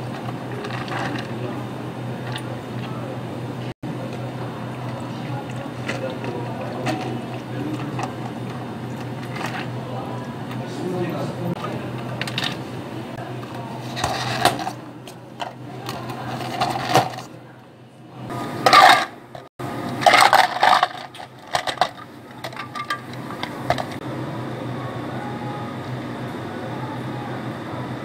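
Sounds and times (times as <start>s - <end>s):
steady low hum: 0.0s - 28.0s
ice cubes clattering into cups: 15.9s - 17.3s, 20.0s - 24.0s.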